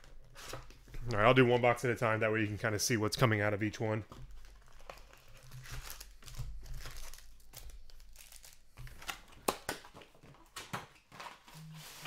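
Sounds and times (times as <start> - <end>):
foil packaging crinkling and tearing: 4.4 - 9.6.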